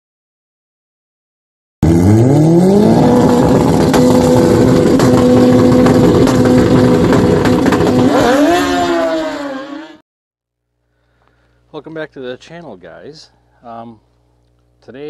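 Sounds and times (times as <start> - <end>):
motorcycle engine revving: 1.8 - 10.0.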